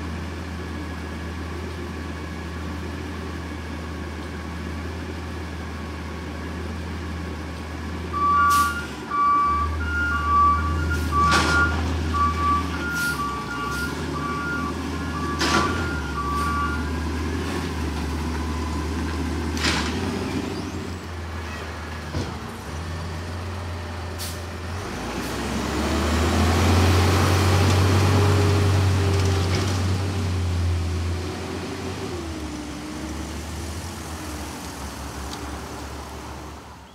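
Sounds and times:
truck engine hum and revving: 0:00.0 - 0:36.9
reversing alarm beeping: 0:08.1 - 0:17.0.

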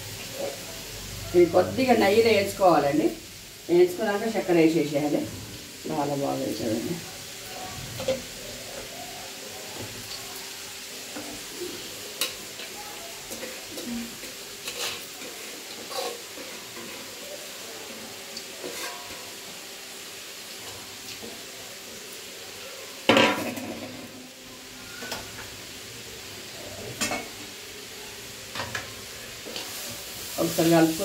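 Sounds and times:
carrot sizzling in a pan: 0:00.0 - 0:31.0
metal utensils knocking on pan: 0:23.1 - 0:24.0.

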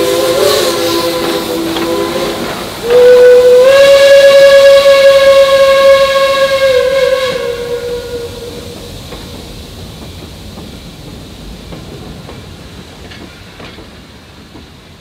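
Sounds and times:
freight cars rolling on rails: 0:00.0 - 0:07.8, 0:08.4 - 0:15.0
steam locomotive whistle: 0:00.0 - 0:09.0.

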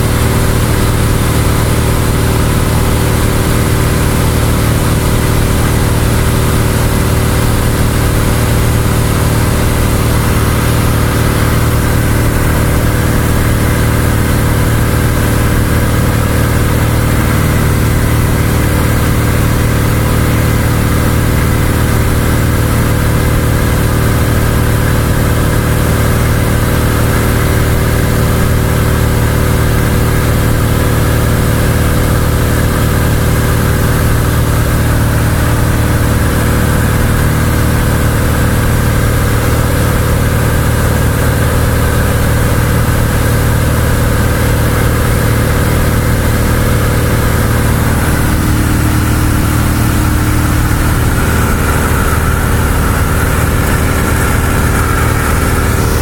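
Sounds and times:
airplane engine and propeller drone: 0:00.0 - 0:56.0.

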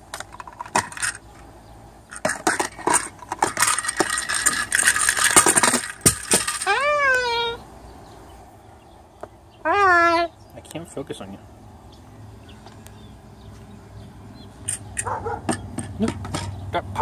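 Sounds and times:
plastic and bead rattling: 0:00.0 - 0:01.3, 0:02.1 - 0:06.8
cockatoo call: 0:06.6 - 0:07.7, 0:09.6 - 0:10.4.

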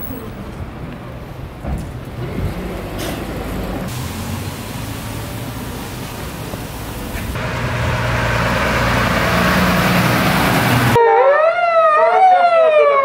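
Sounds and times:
vehicle engine and tyre noise: 0:00.0 - 0:11.0
street traffic: 0:00.0 - 0:13.0
wailing siren: 0:10.9 - 0:13.0.

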